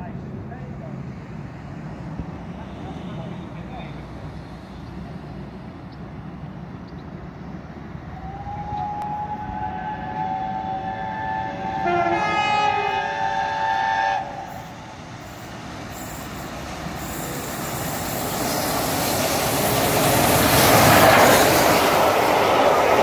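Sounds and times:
train rumble approaching: 0.0 - 23.0
steam locomotive whistle: 8.2 - 14.8.

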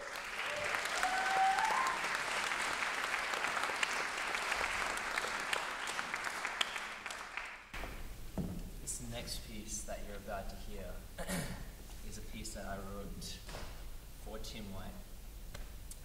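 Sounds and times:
audience cheering: 0.0 - 7.6
audience applauding: 0.0 - 7.7.

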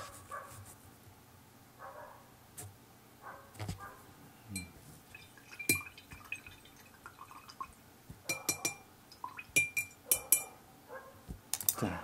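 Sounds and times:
brush clinking against glass jar: 5.4 - 6.5, 8.3 - 10.5.

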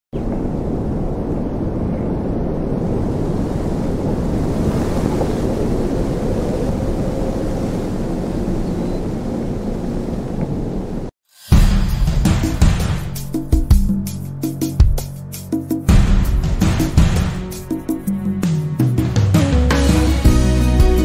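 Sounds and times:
wind buffeting microphone: 0.1 - 11.1.

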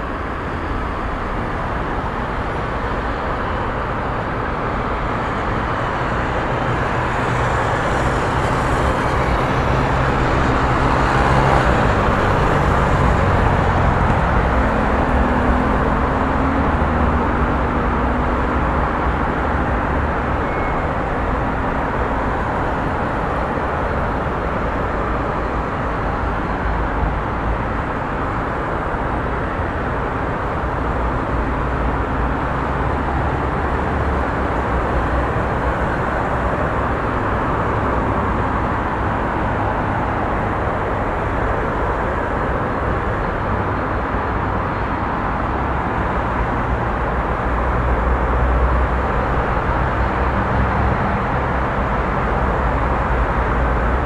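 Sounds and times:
engine hum: 0.0 - 54.0
vehicles passing: 0.0 - 54.0.

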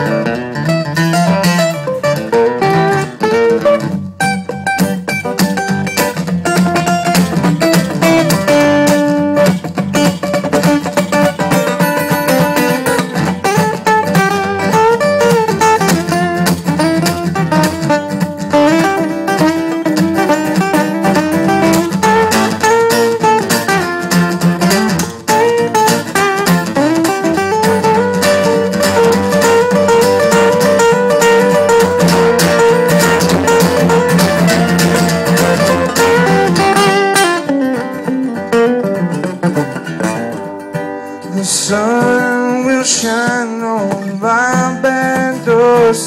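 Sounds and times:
acoustic guitars playing: 0.0 - 46.0
man singing: 41.1 - 46.0.

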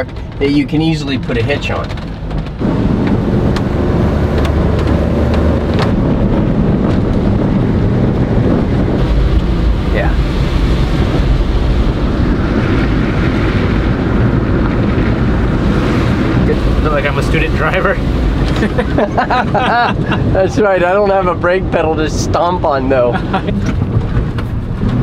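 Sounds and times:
truck engine and road noise: 0.0 - 25.0.

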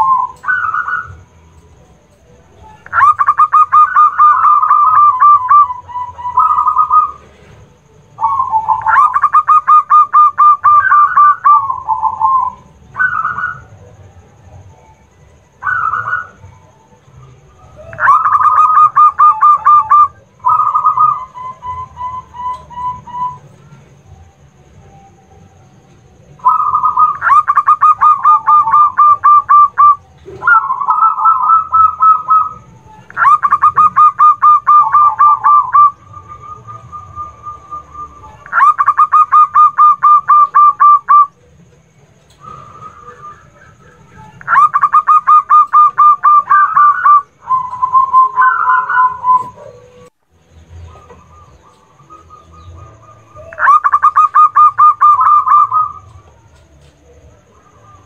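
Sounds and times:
dove song rapid repeated notes: 0.0 - 58.0
soft steady dove calls: 0.0 - 58.0.

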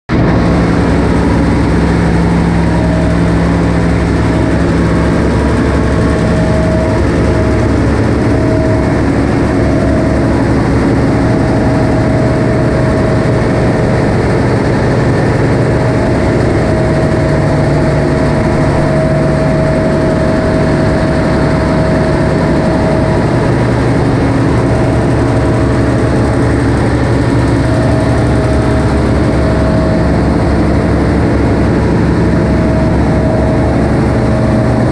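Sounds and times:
diesel engines running: 0.1 - 34.9
generator engine: 0.1 - 34.9.

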